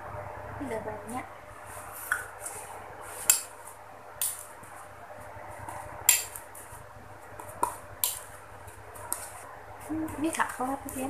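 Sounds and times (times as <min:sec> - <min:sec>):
spoon stirring slime: 0:05.6 - 0:11.0.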